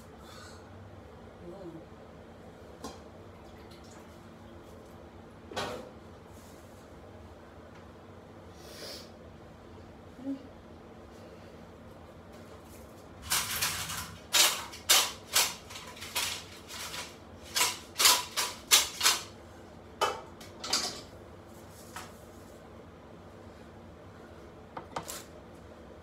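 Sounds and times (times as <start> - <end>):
metal pots clattering: 20.6 - 21.1.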